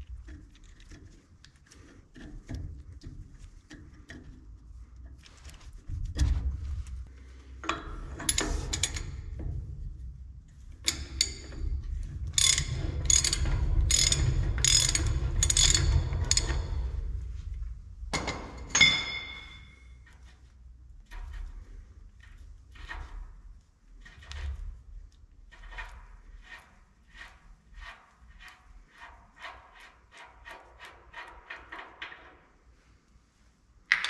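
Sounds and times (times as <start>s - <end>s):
ratchet wrench clicking: 12.4s - 16.7s
ringing metal clink: 18.7s - 19.8s.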